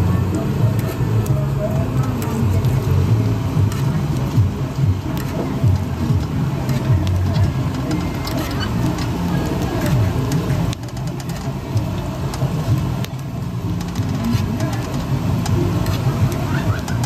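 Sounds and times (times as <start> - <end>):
crowd talking: 0.0 - 17.0
low rumble: 0.0 - 17.0.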